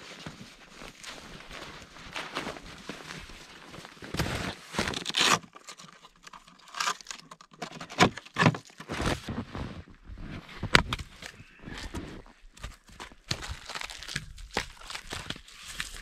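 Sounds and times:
jacket rustling and crumpling: 0.0 - 5.4, 8.8 - 16.0.

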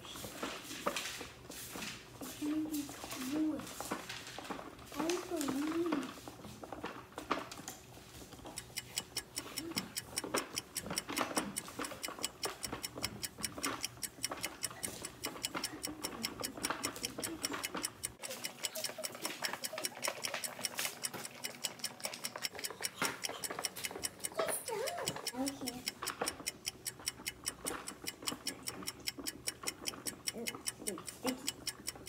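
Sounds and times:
hand-cranked plastic mixer clicking: 8.3 - 32.0.

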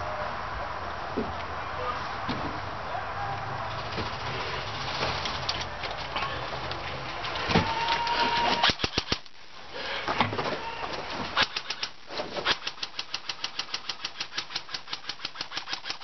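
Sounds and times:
airsoft gun shots: 8.4 - 9.2, 11.3 - 16.0.

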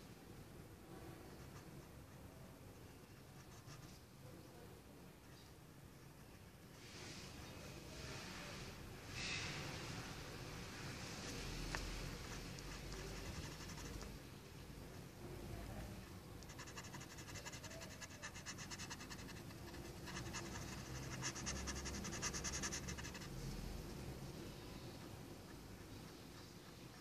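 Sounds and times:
pencil scratching on paper: 11.7 - 14.1, 16.4 - 23.4.

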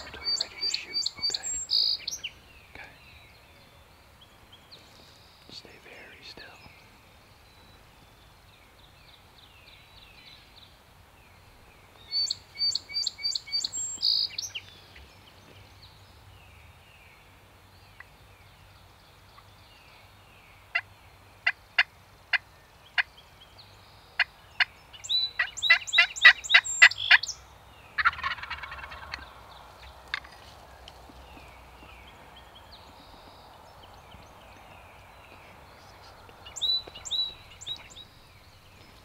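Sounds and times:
wild turkey calls: 0.0 - 2.4, 25.3 - 33.4.

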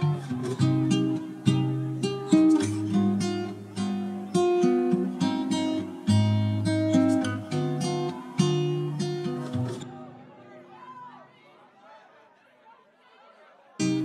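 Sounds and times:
acoustic guitar chords: 0.0 - 10.7, 13.8 - 14.0.

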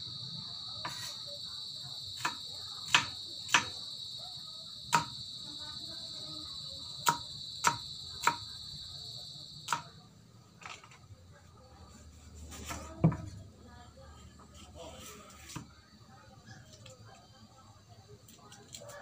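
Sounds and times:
cleaver chopping on wooden block: 2.2 - 3.7, 4.9 - 5.2, 7.0 - 8.4, 9.7 - 9.9.

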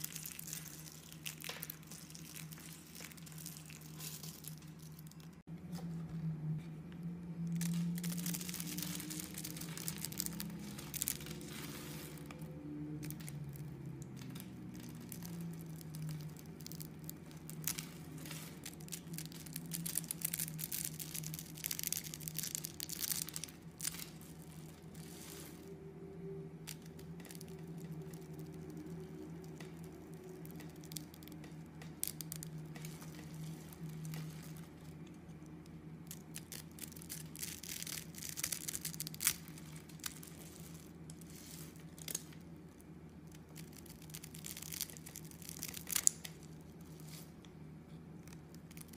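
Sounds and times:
soap cubes crackling and rustling: 0.0 - 5.5, 7.3 - 48.9
faint steady hum: 0.0 - 48.9.

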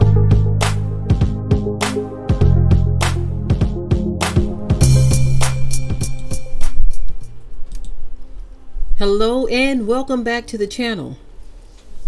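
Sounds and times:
held low bass notes: 0.0 - 6.6
steady drum beat: 0.0 - 7.0.

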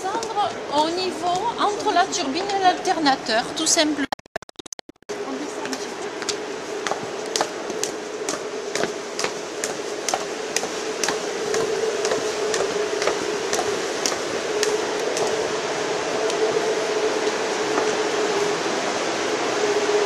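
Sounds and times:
machinery hum: 5.1 - 20.0
footsteps going down stairs: 5.6 - 15.4.

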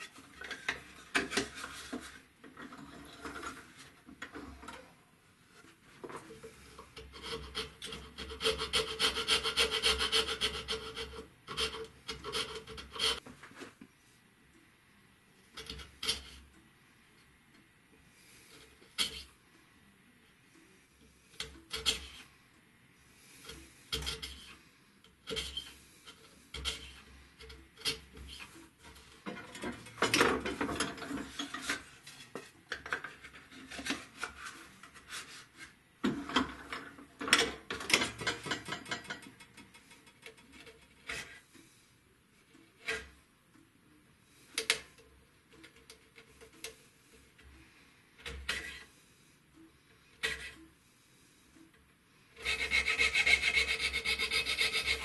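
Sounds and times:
hand tool scraping wood: 6.0 - 13.2, 23.4 - 24.6, 25.2 - 39.2, 50.2 - 50.6, 52.4 - 55.0.

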